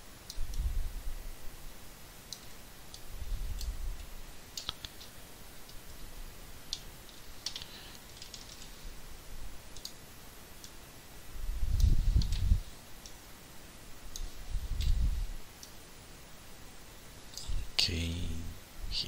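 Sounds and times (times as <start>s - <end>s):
mouse and keyboard clicks: 4.6s - 5.1s.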